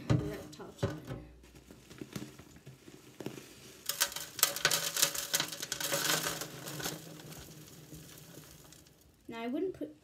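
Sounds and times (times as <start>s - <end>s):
chips pattering into plastic tank: 0.0s - 9.2s.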